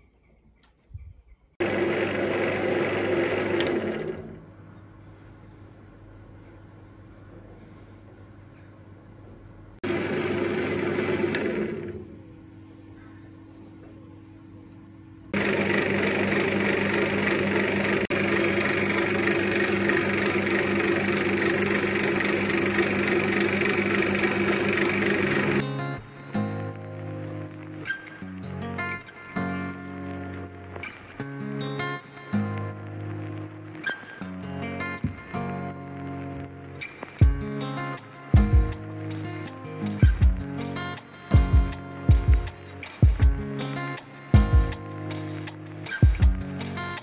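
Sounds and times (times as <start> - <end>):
lathe tool cutting wood: 1.6 - 4.3, 9.8 - 12.1, 15.4 - 25.6
lathe motor humming: 1.6 - 4.4, 9.8 - 12.4, 15.4 - 25.6.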